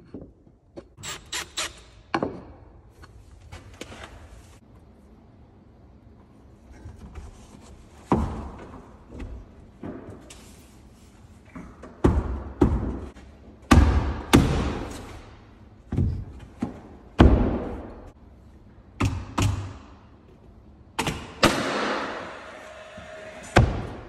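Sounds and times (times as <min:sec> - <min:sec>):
nail gun firing: 0:21.0 - 0:22.2.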